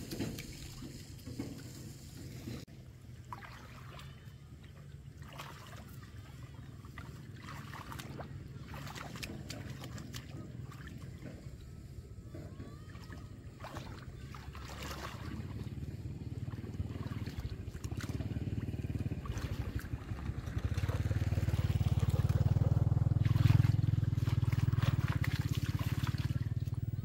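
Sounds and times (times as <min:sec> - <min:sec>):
water splashing from wading: 0:00.0 - 0:27.0
small engine running: 0:05.8 - 0:27.0.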